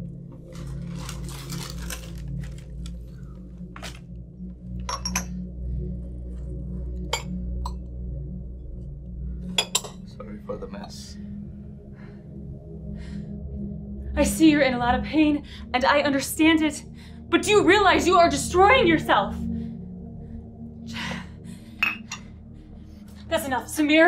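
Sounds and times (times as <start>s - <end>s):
background music drone: 0.0s - 24.0s
tableware clinking: 4.9s - 5.3s, 9.6s - 10.0s, 21.8s - 22.2s.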